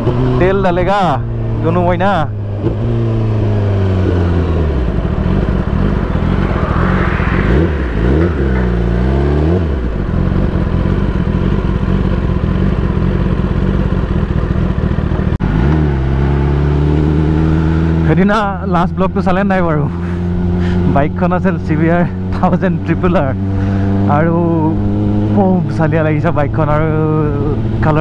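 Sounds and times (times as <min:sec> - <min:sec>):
wind noise on microphone: 0:03.8 - 0:10.6
motorcycle engine running: 0:09.0 - 0:21.2.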